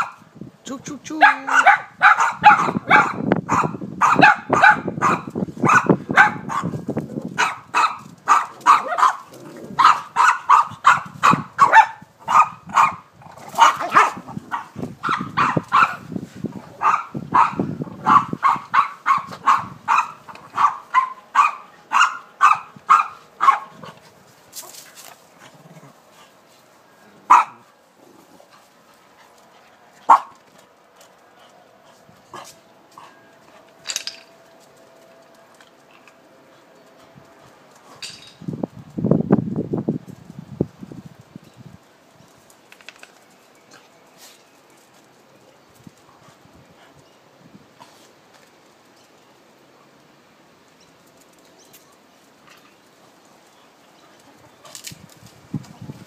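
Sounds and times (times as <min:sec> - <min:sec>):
dog barking: 0:01.2 - 0:06.8, 0:07.4 - 0:09.2, 0:09.8 - 0:13.0, 0:13.6 - 0:16.0, 0:16.8 - 0:23.7, 0:27.3 - 0:27.6, 0:30.1 - 0:30.3.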